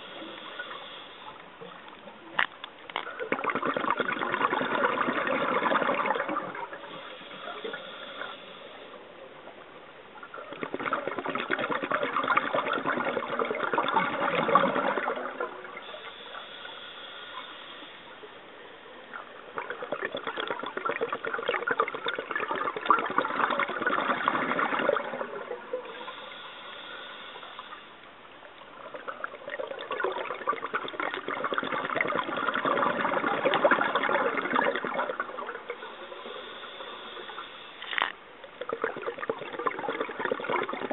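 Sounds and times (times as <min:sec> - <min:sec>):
exhaled bubbles rushing: 0:03.0 - 0:07.1, 0:10.2 - 0:16.0, 0:19.5 - 0:26.1, 0:28.7 - 0:36.4, 0:38.0 - 0:40.9
high hiss of inhalation: 0:06.9 - 0:08.9, 0:15.9 - 0:18.2, 0:25.9 - 0:28.0, 0:35.9 - 0:38.1.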